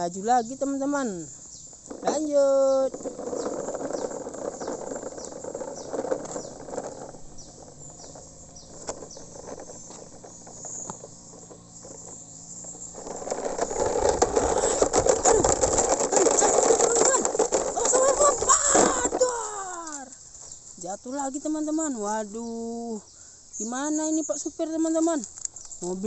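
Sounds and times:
plastic toy truck rattling over grit: 0:00.0 - 0:20.6.

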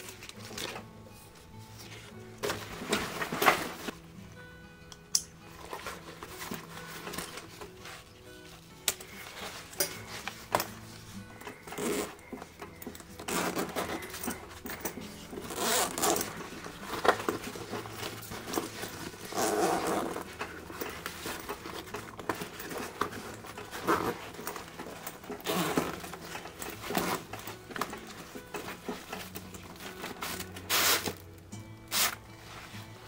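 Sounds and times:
fabric rustling: 0:00.0 - 0:04.0, 0:05.5 - 0:12.6, 0:13.2 - 0:31.2
zippers being pulled: 0:11.4 - 0:31.2, 0:31.9 - 0:32.2.

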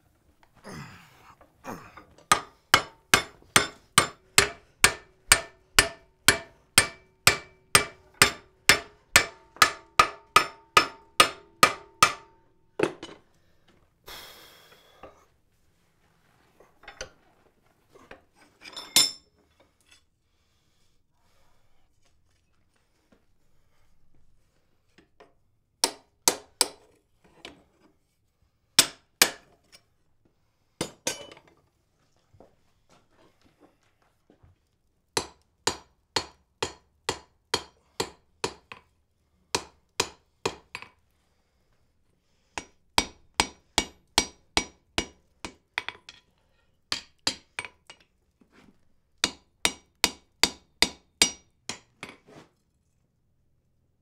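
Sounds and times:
hammer striking iron on anvil: 0:02.3 - 0:13.0, 0:28.8 - 0:29.4, 0:35.2 - 0:38.8, 0:39.6 - 0:40.9, 0:42.6 - 0:46.2, 0:49.2 - 0:51.9.

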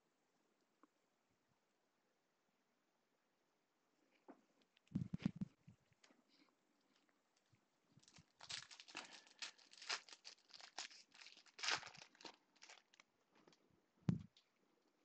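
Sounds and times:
foil pack tearing and crinkling: 0:08.0 - 0:13.0.

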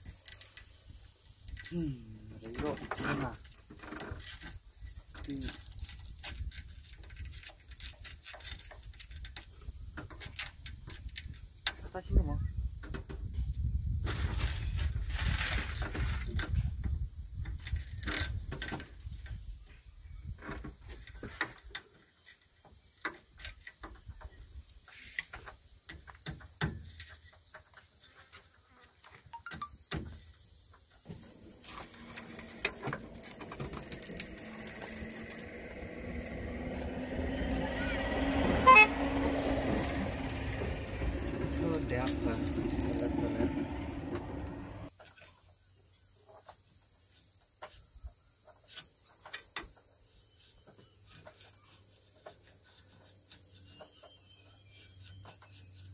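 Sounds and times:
high insect drone: 0:15.6 - 0:48.1.

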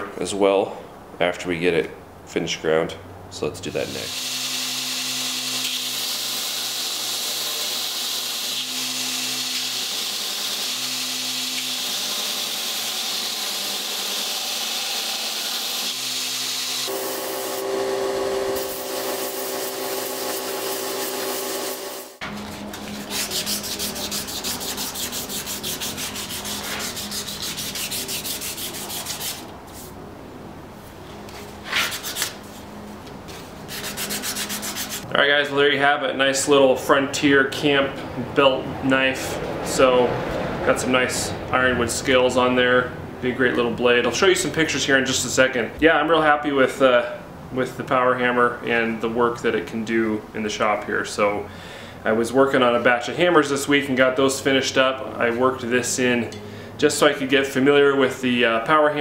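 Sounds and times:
belt grinder grinding steel: 0:03.9 - 0:22.2
hand sanding wood: 0:18.6 - 0:30.0, 0:33.7 - 0:35.1.

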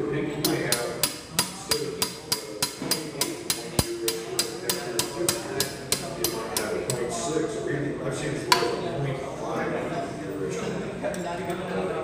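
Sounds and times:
hammer tapping on metal: 0:00.4 - 0:07.0.

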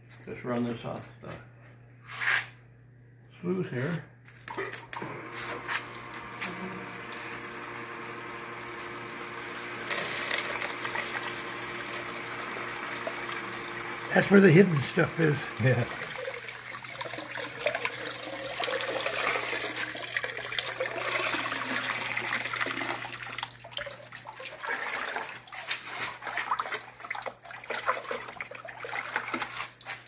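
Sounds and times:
water pouring into bucket: 0:08.2 - 0:30.0
water splashing into plastic tub: 0:15.8 - 0:30.0.

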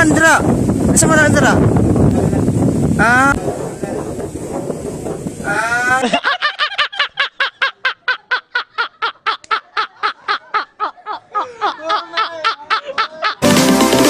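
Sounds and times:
men laughing hard: 0:05.4 - 0:13.6.

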